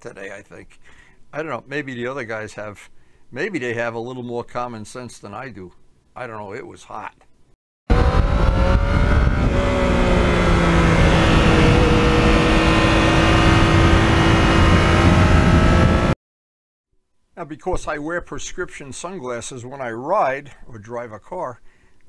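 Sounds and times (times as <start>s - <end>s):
motorcycle engine running: 7.9s - 16.2s
steady rushing noise: 7.9s - 16.2s.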